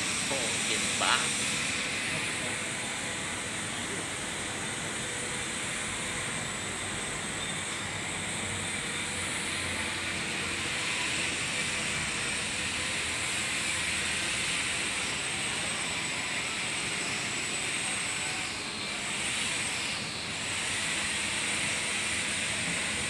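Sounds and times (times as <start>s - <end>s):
machinery hiss: 0.0s - 4.8s.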